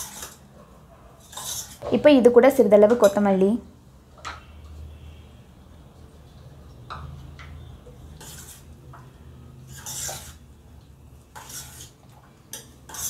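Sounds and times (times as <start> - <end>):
spoon scraping metal bowl: 0.0 - 0.5, 1.2 - 3.4, 6.9 - 13.0.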